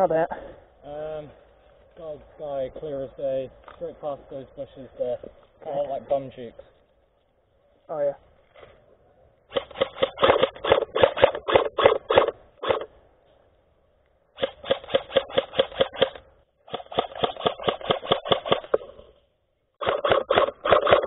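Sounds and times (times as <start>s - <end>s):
airsoft rifle rapid fire: 9.5s - 12.9s, 14.4s - 19.1s, 19.8s - 21.0s.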